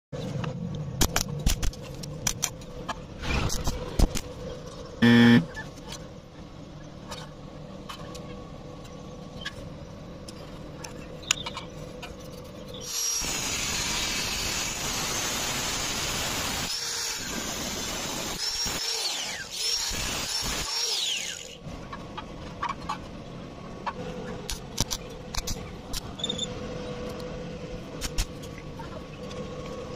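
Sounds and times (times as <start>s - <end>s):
angle grinder cutting metal: 12.8s - 21.6s.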